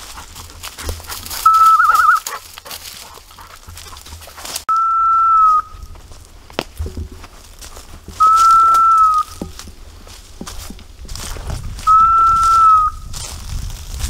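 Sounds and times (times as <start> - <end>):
dry leaves crackling underfoot: 0.0 - 14.0
person whistling signals: 1.4 - 2.2, 4.7 - 5.8, 8.2 - 9.4, 11.8 - 13.1
wind rumble on microphone: 9.2 - 14.0.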